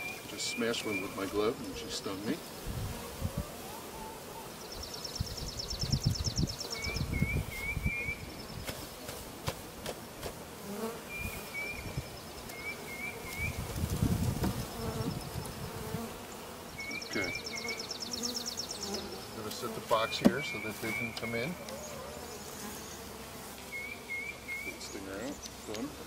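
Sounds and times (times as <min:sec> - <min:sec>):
honey bees buzzing: 0:00.0 - 0:26.0
low gusts of noise: 0:02.6 - 0:08.7, 0:13.2 - 0:16.2
bird trilling and chirping: 0:16.8 - 0:19.3.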